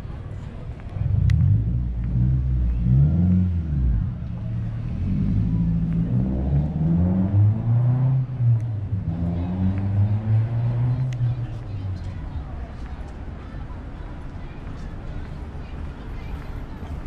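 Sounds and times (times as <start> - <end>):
vehicle engine revving: 1.0 - 11.5.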